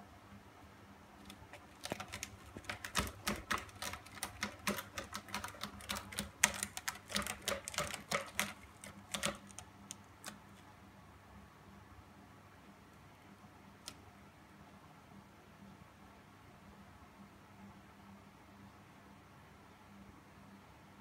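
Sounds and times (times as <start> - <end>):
cat claws scratching rope post: 1.2 - 10.7.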